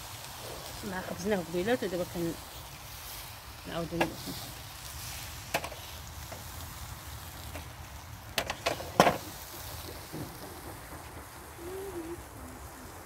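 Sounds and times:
low steady rumble: 0:06.0 - 0:13.0.

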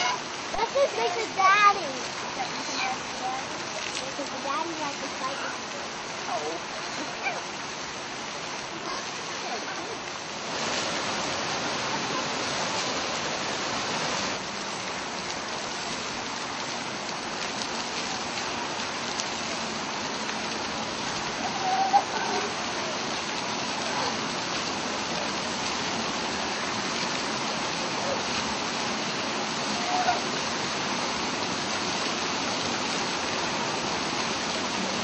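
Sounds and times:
pool water noise: 0:00.0 - 0:35.0
sea lion pup call: 0:21.4 - 0:22.5, 0:29.7 - 0:30.3.

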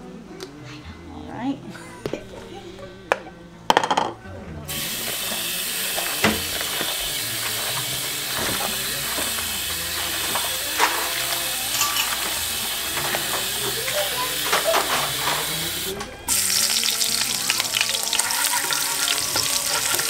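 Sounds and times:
tap water running into bowl: 0:04.8 - 0:15.5, 0:16.3 - 0:20.0.

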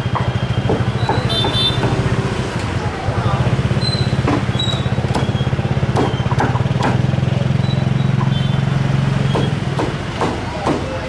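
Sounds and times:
cleaver chopping on wooden block: 0:05.1 - 0:07.1.

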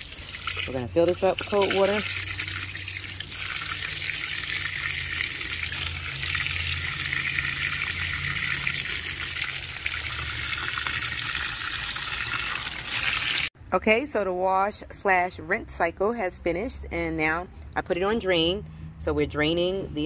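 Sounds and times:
hose water splashing into tub: 0:00.0 - 0:13.5.

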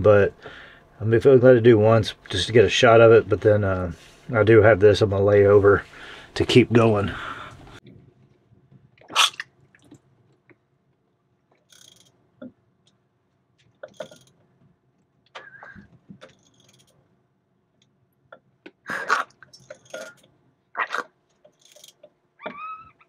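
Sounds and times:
gliding squeaks: 0:21.8 - 0:23.0.

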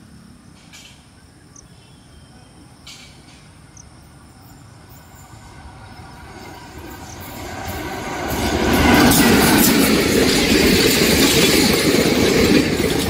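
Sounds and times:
train wheels on rails: 0:02.8 - 0:13.0.

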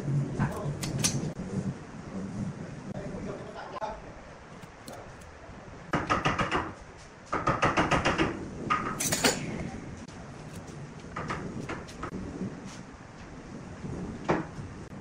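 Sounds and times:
metal rulers clattering on wood: 0:00.5 - 0:01.3, 0:04.6 - 0:05.3, 0:09.0 - 0:09.4
metal clink: 0:09.0 - 0:09.4.

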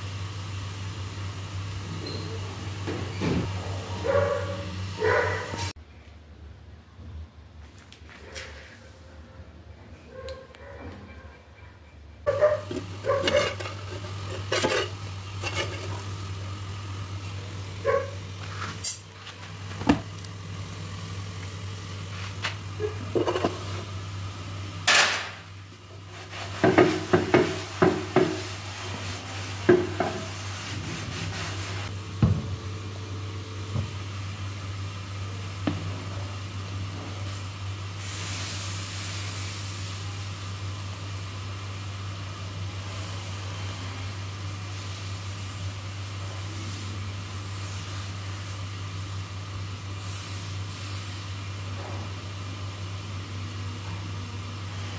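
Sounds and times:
utensils clattering on a clay pan: 0:12.3 - 0:16.0.

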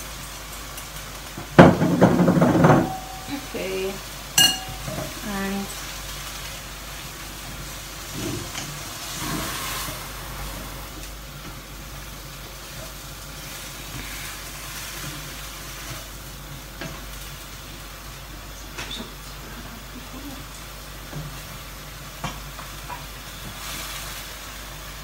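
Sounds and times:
food sizzling in a wok: 0:00.0 - 0:25.0
stirring knocks: 0:01.4 - 0:03.4.

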